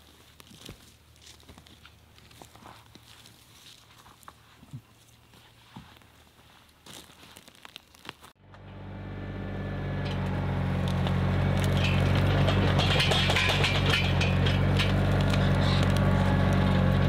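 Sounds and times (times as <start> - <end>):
footsteps: 0.0 - 8.4
tractor engine running: 8.4 - 17.0.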